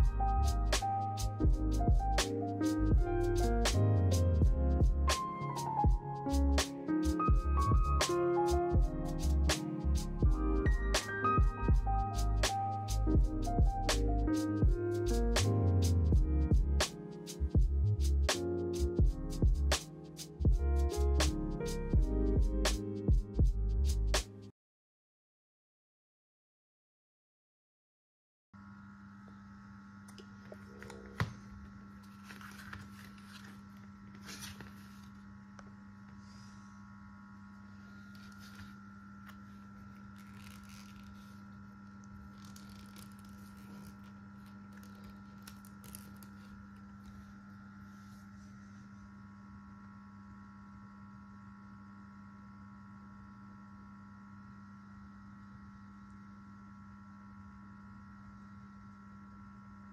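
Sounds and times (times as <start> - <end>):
steady electrical hum: 0.0 - 24.2, 28.6 - 59.9
cardboard packaging rustling: 32.0 - 35.2, 37.9 - 47.2.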